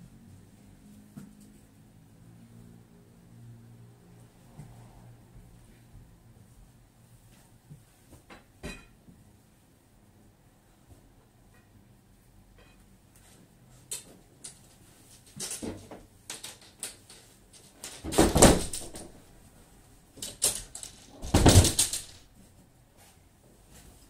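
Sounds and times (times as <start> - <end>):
objects clicking and knocking: 13.8 - 19.2, 20.2 - 22.3.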